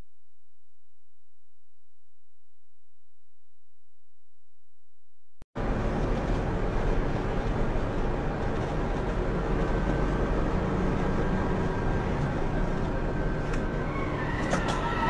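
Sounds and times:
truck engine and road rumble: 0:05.6 - 0:15.0.

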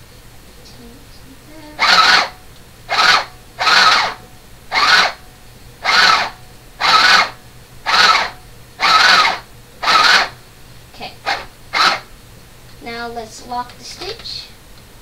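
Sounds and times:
sewing machine running in bursts: 0:01.8 - 0:05.2, 0:05.8 - 0:10.4, 0:11.2 - 0:12.1.

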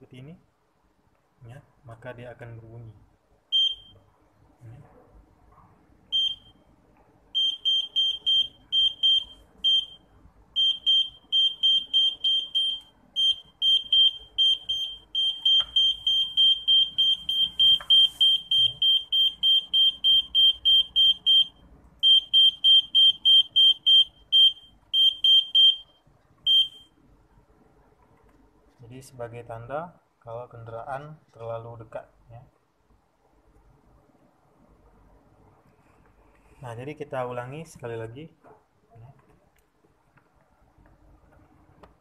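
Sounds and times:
buzzer beeping high pitch: 0:10.6 - 0:25.9.

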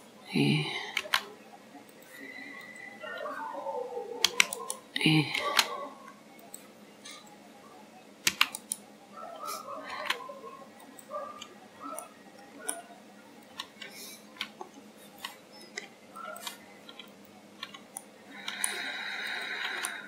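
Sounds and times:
mouse and keyboard clicks: 0:04.2 - 0:05.7, 0:08.3 - 0:08.8, 0:13.4 - 0:20.0.

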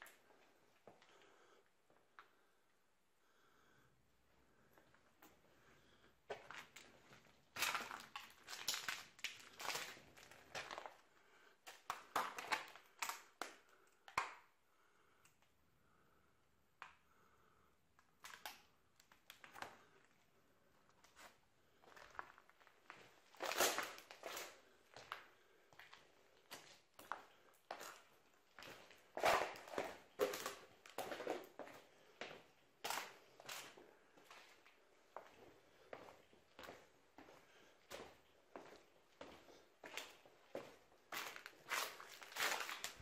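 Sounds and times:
footsteps crunching on rubble: 0:06.3 - 0:11.0, 0:21.0 - 0:43.0.

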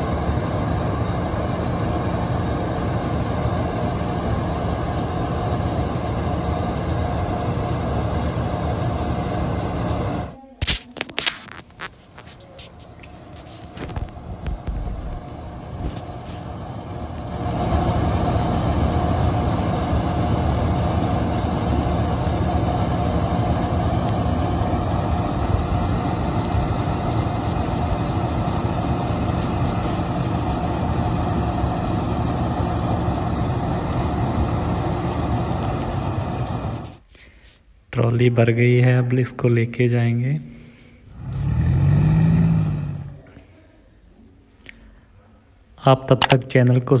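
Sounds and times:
diesel engine rumbling: 0:00.0 - 0:10.4, 0:11.1 - 0:37.1, 0:41.1 - 0:43.3
auger discharging grain: 0:00.0 - 0:37.1.

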